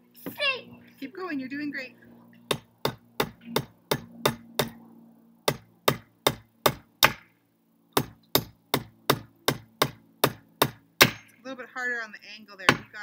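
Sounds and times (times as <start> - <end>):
hammer striking nail into wood: 2.5 - 4.8, 5.5 - 7.3, 8.0 - 11.4, 12.7 - 12.9.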